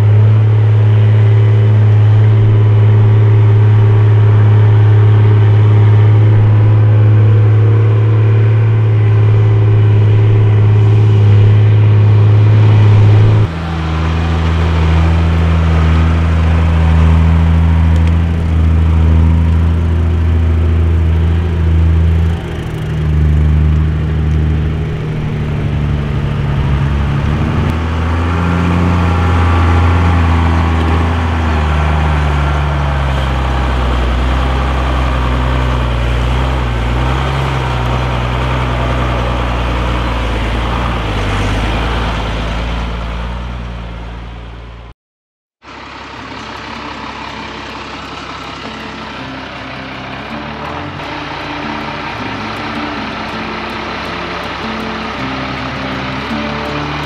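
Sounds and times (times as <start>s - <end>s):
truck diesel engine running: 0.0s - 44.9s, 45.6s - 57.0s.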